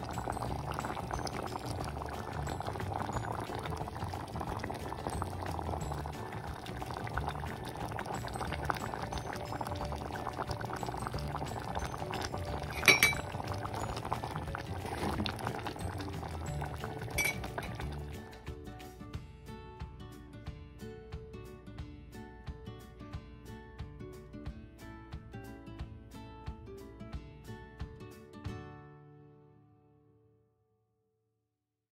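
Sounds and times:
curry bubbling in a pot: 0:00.0 - 0:18.4
metal clink: 0:12.7 - 0:13.3.

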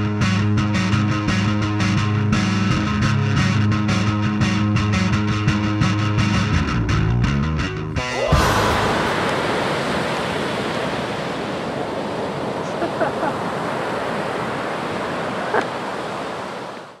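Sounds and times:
waves breaking on shore: 0:08.3 - 0:17.0.

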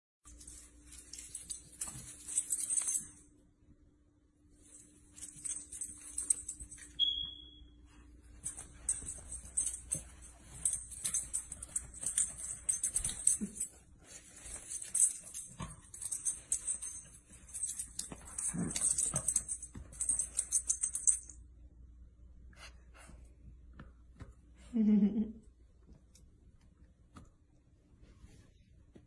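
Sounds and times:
dog collar tags jingling: 0:00.3 - 0:03.3, 0:04.6 - 0:07.6, 0:08.3 - 0:21.4.

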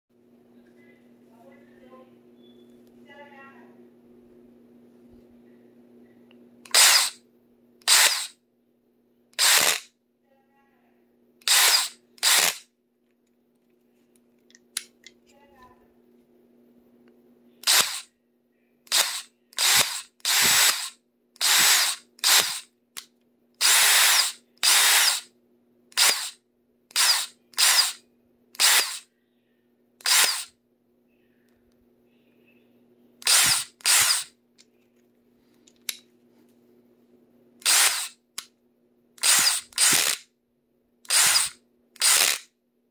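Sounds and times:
power drill short bursts: 0:06.7 - 0:07.2, 0:07.9 - 0:08.3, 0:09.4 - 0:09.8, 0:11.4 - 0:12.6, 0:17.6 - 0:18.0, 0:18.9 - 0:22.6, 0:23.6 - 0:25.3, 0:26.0 - 0:26.4, 0:27.0 - 0:28.0, 0:28.6 - 0:29.0, 0:30.0 - 0:30.5, 0:33.2 - 0:34.3, 0:37.6 - 0:38.2, 0:39.2 - 0:40.2, 0:41.1 - 0:42.4.

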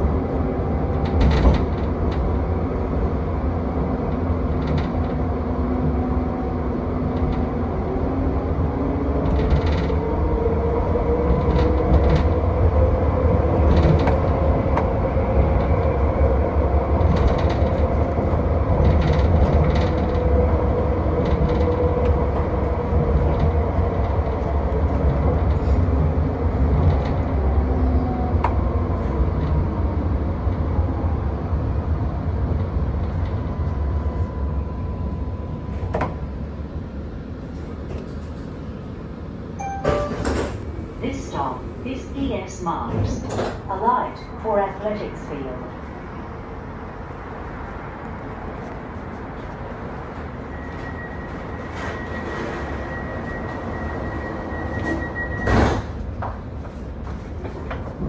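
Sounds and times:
tram rumbling on rails: 0:00.0 - 0:58.0
tram motor whine: 0:45.6 - 0:58.0.

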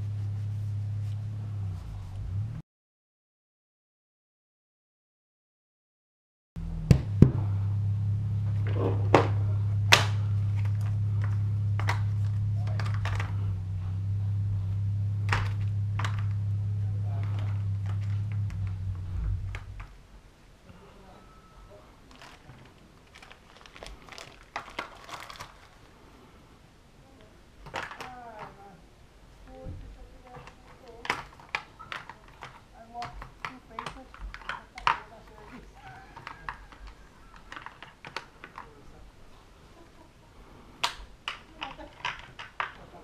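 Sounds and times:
steady low hum: 0:00.0 - 0:02.6, 0:06.6 - 0:27.6
crinkling and light clicks: 0:09.9 - 0:13.5, 0:17.1 - 0:20.0, 0:22.0 - 0:26.0, 0:27.2 - 0:28.7, 0:29.5 - 0:39.0, 0:40.8 - 0:43.0.

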